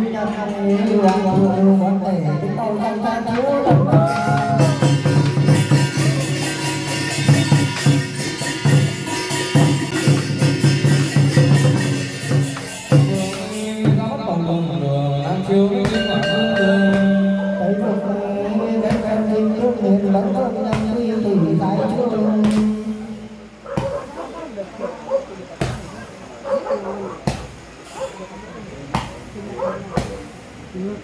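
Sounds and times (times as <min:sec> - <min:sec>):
crackling percussion: 0:03.2 - 0:14.4, 0:15.4 - 0:24.6, 0:27.2 - 0:28.1, 0:28.9 - 0:30.6.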